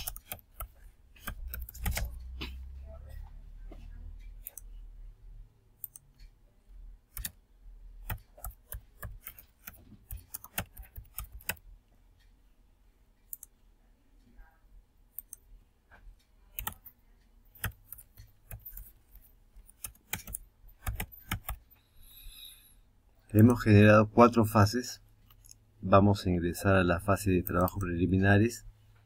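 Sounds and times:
computer keyboard typing: 0.0s - 2.4s, 5.8s - 6.2s, 7.0s - 7.4s, 8.0s - 11.6s, 16.5s - 21.7s, 27.0s - 28.0s
mouse clicks: 0.0s - 2.6s, 5.8s - 6.3s, 13.3s - 13.5s, 16.5s - 16.9s.

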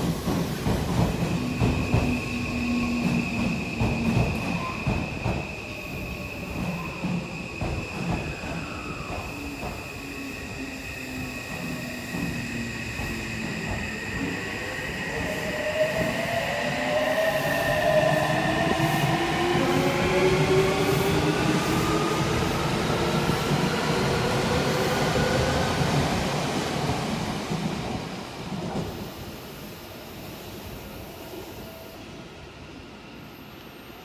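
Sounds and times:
train wheels rumbling: 0.0s - 29.1s.

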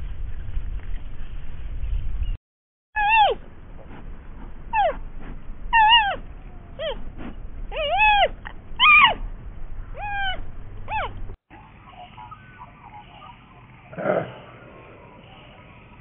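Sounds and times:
young pandas crying: 3.0s - 3.4s, 4.7s - 5.0s, 5.7s - 7.0s, 7.7s - 9.2s, 10.0s - 11.2s
low background rumble: 3.0s - 16.0s.

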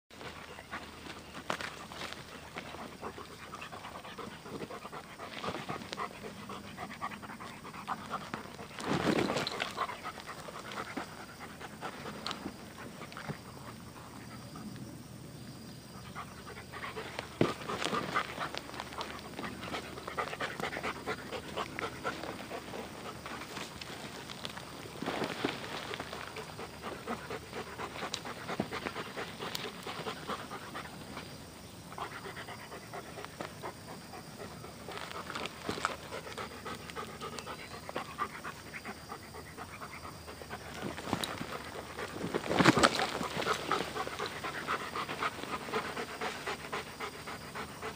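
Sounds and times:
scuffling: 0.2s - 6.6s, 7.4s - 13.8s, 16.4s - 31.5s, 40.3s - 47.3s
dog panting: 0.2s - 14.8s, 16.0s - 24.2s, 25.3s - 47.9s.

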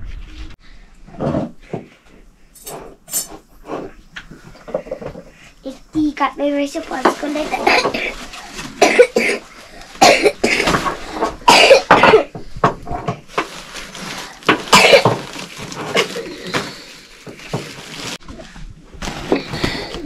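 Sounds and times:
person coughing: 7.5s - 8.2s, 8.8s - 12.4s, 14.5s - 15.2s.

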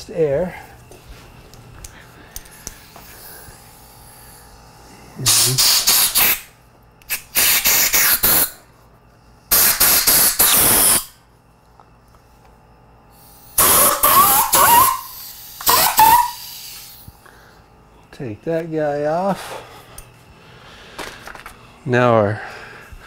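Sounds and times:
compressed air blow gun blasts: 5.2s - 8.6s, 9.5s - 11.2s, 13.2s - 17.1s.

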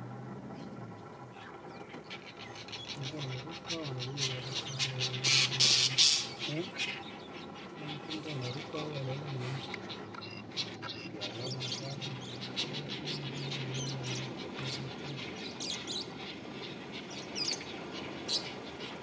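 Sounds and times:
faint low hum: 0.0s - 19.0s
small animals chirping: 0.6s - 19.0s.

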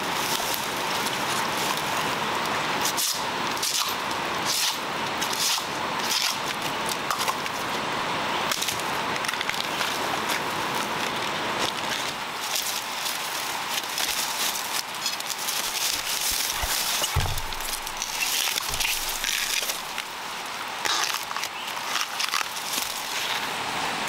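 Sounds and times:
dry leaves crackling and rustling: 0.0s - 7.8s, 8.4s - 24.0s
background hiss: 12.2s - 24.0s.

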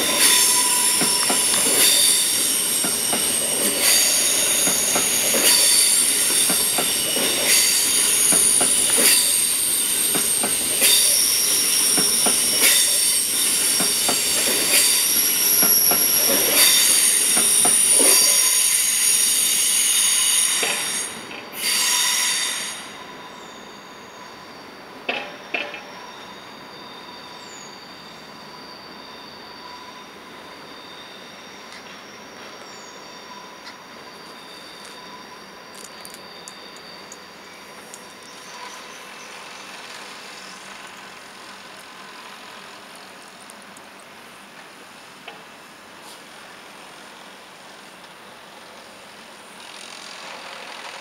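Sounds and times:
train rumble: 0.0s - 23.0s
train wheels squealing: 0.0s - 51.0s.

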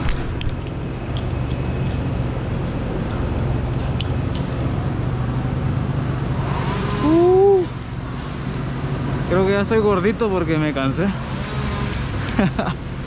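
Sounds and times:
low rumble of motor vehicles: 0.0s - 13.0s
person groaning with effort: 7.0s - 7.8s.

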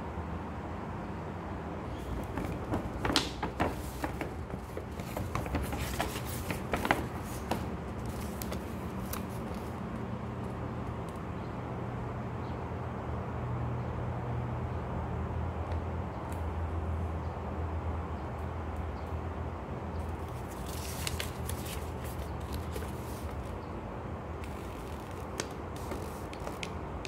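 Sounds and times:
paper rustling and crinkling: 2.0s - 9.8s, 20.2s - 23.6s, 24.4s - 26.8s.

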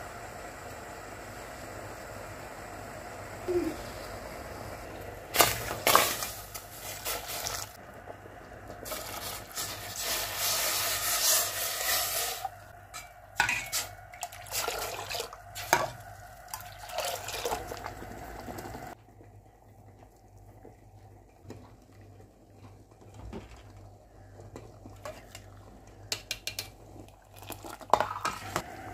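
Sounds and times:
liquid splashing and pouring: 5.3s - 7.8s, 13.8s - 15.9s, 16.5s - 18.1s.

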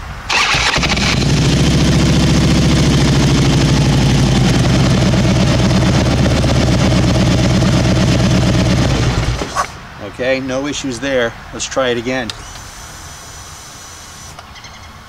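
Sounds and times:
motorcycle engine idling: 0.3s - 9.6s.

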